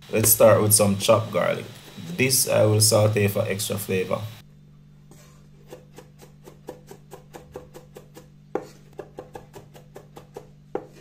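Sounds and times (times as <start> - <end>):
knife tapping on wooden board: 5.7 - 11.0.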